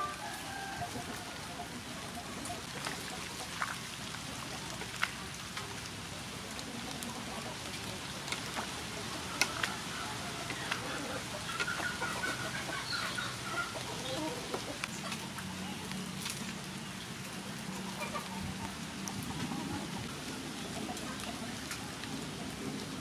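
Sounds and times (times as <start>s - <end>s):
water boiling: 1.1s - 15.4s
bird calling: 9.3s - 16.3s.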